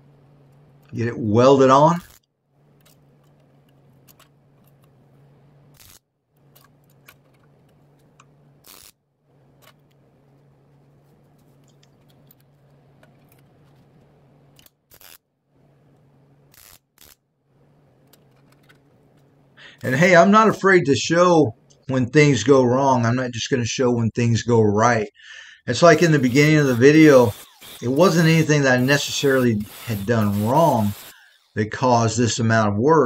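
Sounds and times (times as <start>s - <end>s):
low steady hum: 0.0s - 33.0s
welder tacking bursts: 2.0s - 3.0s, 5.8s - 7.1s, 8.6s - 9.0s, 14.9s - 15.2s, 16.5s - 17.2s, 25.8s - 31.8s.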